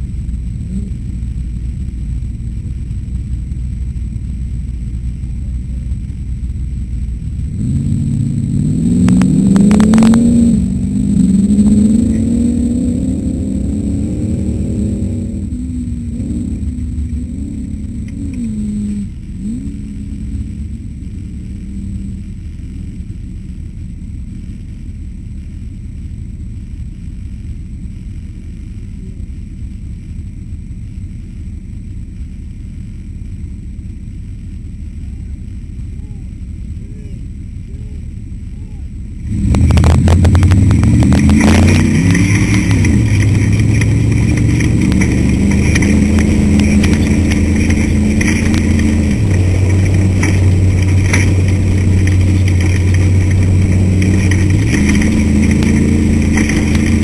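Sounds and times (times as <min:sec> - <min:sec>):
race car engine revving: 0:06.8 - 0:23.6, 0:35.0 - 0:57.0.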